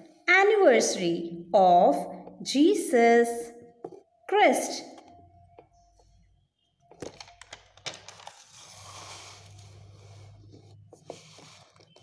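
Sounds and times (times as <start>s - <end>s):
soft paper-like rustle: 8.1s - 12.0s.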